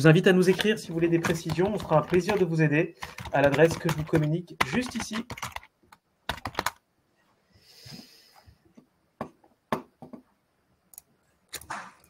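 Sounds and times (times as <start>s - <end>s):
computer keyboard clicks: 0.5s - 6.8s
breath close to microphone: 7.5s - 8.6s.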